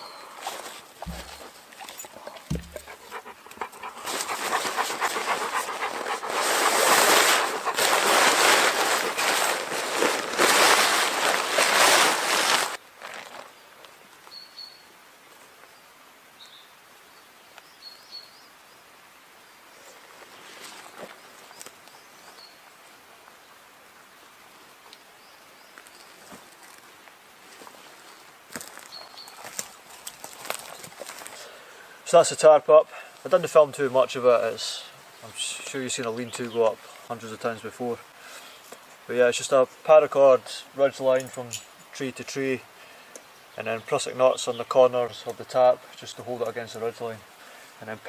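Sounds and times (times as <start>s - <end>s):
tarp rustling and crinkling: 0.0s - 13.9s, 20.0s - 21.8s, 25.8s - 31.6s
dog panting: 1.0s - 9.2s
dull knocks: 2.5s - 3.0s
faint bird chirps: 14.3s - 14.9s.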